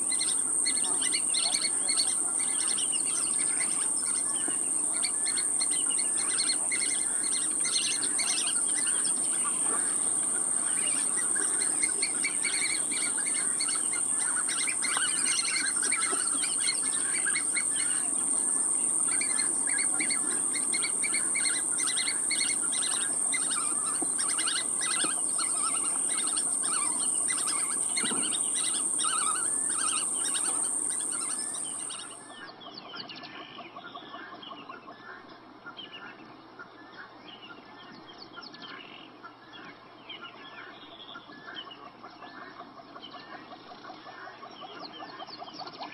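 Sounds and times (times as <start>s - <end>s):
birds chirping: 0.0s - 32.3s
steady high-pitched whine: 0.0s - 32.6s.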